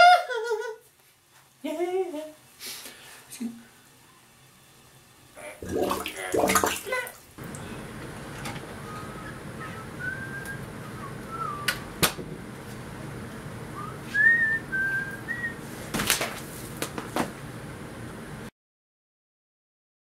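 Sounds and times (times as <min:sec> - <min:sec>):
person whistling a tune: 0:08.8 - 0:11.8, 0:13.8 - 0:15.6.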